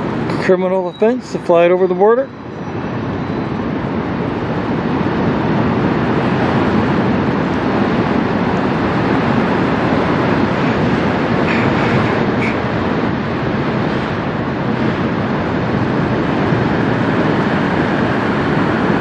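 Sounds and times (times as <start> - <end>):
ship passing rumble: 0.0 - 19.0.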